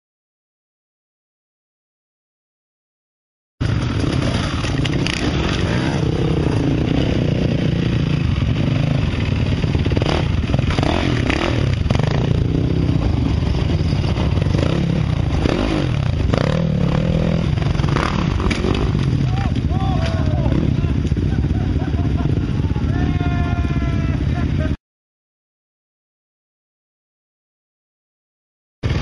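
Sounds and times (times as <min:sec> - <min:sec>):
dirt bike engine revving: 0:03.6 - 0:24.7.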